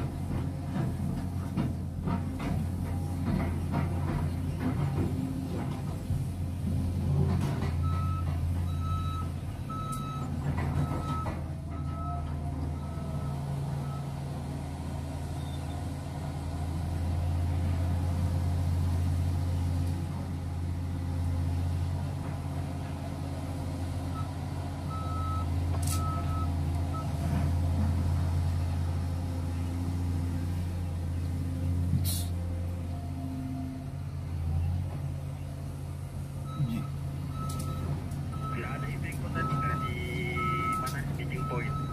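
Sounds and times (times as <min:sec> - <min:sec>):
excavator diesel engine running: 0:00.0 - 0:41.9
backup alarm beeping: 0:36.5 - 0:41.9.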